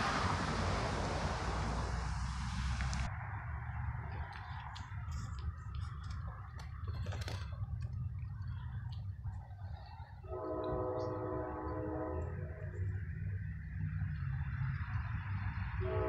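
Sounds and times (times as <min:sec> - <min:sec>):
steady low rumble: 0:00.0 - 0:15.8
locomotive air horn blast: 0:10.2 - 0:12.9, 0:15.8 - 0:16.0.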